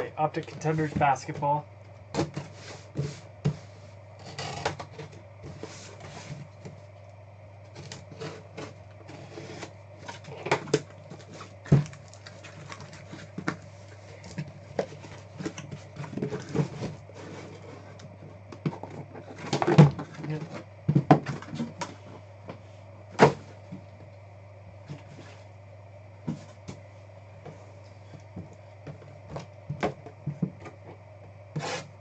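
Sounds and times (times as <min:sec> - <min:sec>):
steady low hum: 0:00.0 - 0:32.0
cardboard scraping and rustling: 0:02.2 - 0:06.9, 0:07.7 - 0:11.9, 0:12.5 - 0:22.2, 0:31.5 - 0:32.0.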